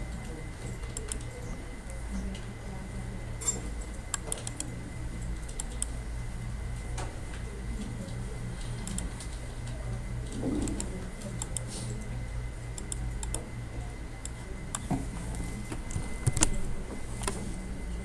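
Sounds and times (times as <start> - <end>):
low electrical hum: 0.0 - 18.0
keyboard and mouse clicks: 0.9 - 1.3, 4.1 - 4.7, 5.4 - 5.9, 8.8 - 9.1, 10.6 - 11.7, 12.8 - 13.4, 16.2 - 16.6.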